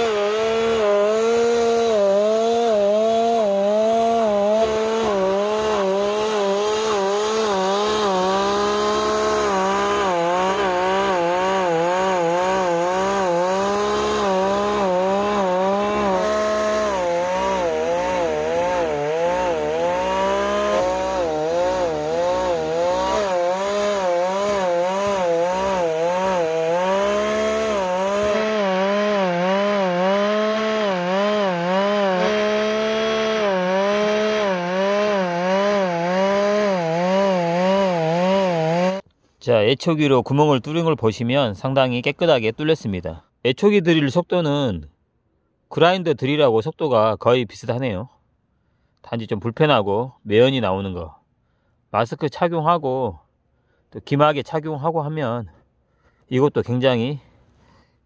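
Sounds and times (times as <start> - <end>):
two-stroke engine running fast: 0.0 - 39.0.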